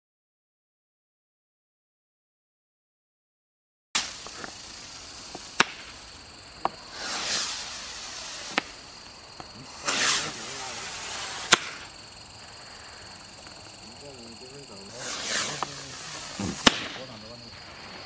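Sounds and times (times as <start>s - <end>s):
small firework pops: 4.0s - 13.8s, 14.9s - 18.0s
loud firework bangs: 4.0s - 18.0s
rocket rushing hiss: 4.0s - 18.0s.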